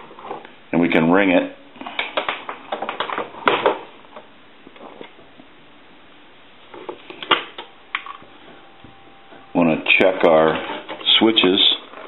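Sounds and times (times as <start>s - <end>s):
faint steady tone: 4.3s - 12.0s.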